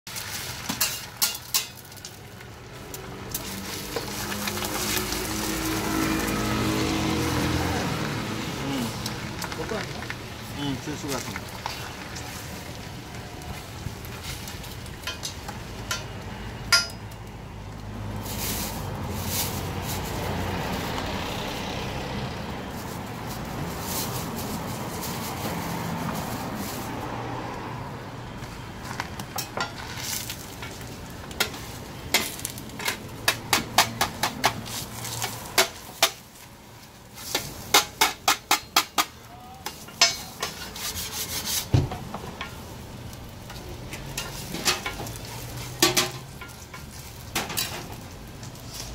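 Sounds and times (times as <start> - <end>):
egg sizzling on griddle: 0.1 - 7.4, 29.4 - 48.9
metal spatula scraping griddle: 0.2 - 2.2, 37.2 - 41.8, 43.5 - 48.0.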